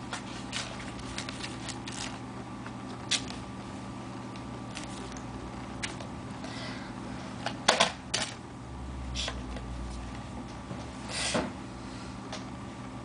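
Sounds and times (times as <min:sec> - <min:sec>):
steady low hum: 0:00.0 - 0:13.0
paper rustling: 0:00.1 - 0:02.2.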